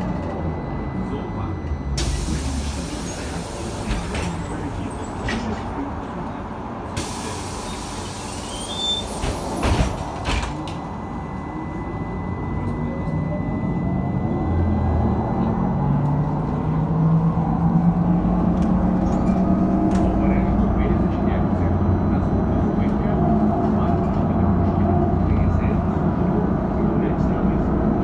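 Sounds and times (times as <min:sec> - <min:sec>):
air hiss of bus doors: 0:02.0 - 0:04.5, 0:07.0 - 0:10.0.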